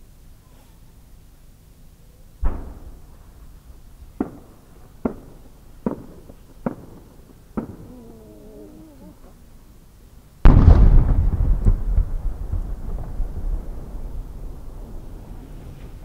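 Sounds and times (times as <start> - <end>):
firework launch boom: 2.4 - 7.9, 10.4 - 16.0
sharp firework cracks: 2.4 - 8.1, 10.4 - 16.0.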